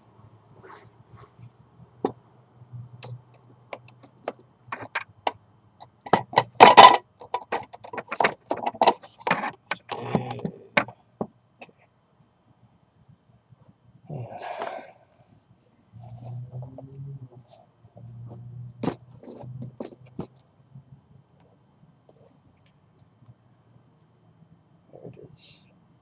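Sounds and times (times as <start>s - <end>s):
handling clicks and rustles: 3.0s - 11.0s, 16.0s - 20.6s.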